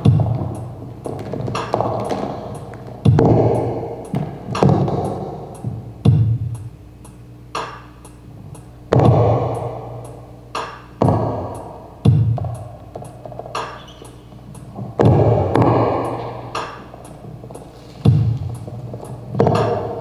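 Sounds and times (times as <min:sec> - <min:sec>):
heavy ringing thuds: 0:14.3 - 0:20.0.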